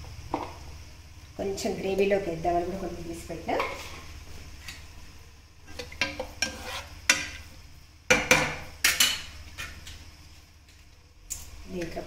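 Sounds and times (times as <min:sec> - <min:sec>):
spoon scraping metal pot: 0:05.7 - 0:07.4.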